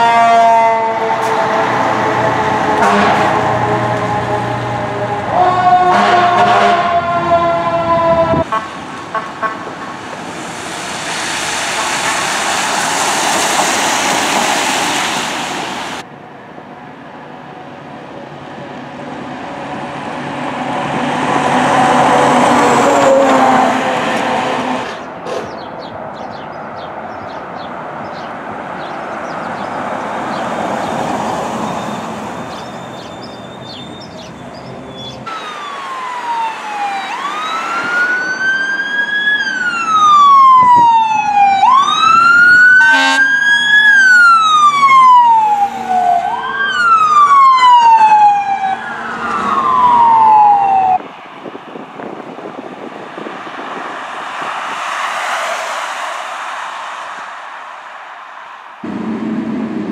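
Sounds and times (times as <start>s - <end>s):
fire trucks passing: 0.0s - 59.9s
electronic siren wailing: 2.1s - 8.4s, 35.0s - 51.0s.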